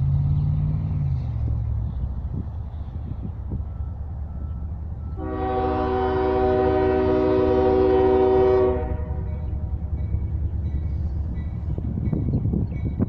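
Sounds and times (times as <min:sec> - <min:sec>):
diesel train rumble: 0:00.0 - 0:13.0
locomotive air horn: 0:05.1 - 0:09.5.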